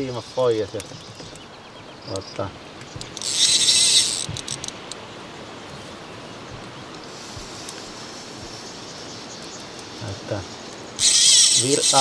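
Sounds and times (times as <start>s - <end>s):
reel clicks: 0.0s - 1.5s, 2.1s - 5.1s, 10.7s - 12.0s
faint outdoor background: 0.0s - 12.0s
fishing reel drag buzzing: 3.0s - 4.8s, 10.9s - 12.0s.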